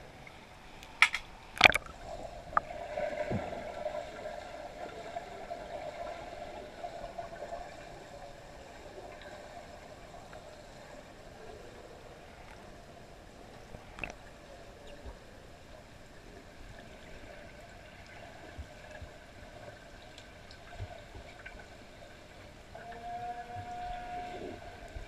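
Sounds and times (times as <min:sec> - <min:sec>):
faint tonal hum: 0:00.0 - 0:25.0
faint underwater clicks: 0:00.2 - 0:03.5, 0:13.5 - 0:15.3, 0:17.6 - 0:21.8.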